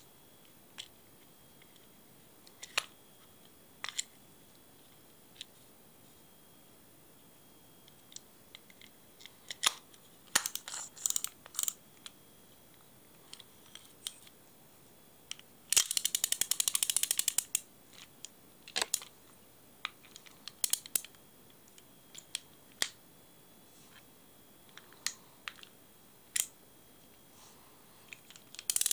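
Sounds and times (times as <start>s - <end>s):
small clicks and knocks of reel: 10.4s - 11.8s, 15.7s - 17.6s, 28.2s - 28.9s
reel ratchet clicking: 10.5s - 11.7s, 15.7s - 17.5s, 28.7s - 28.9s.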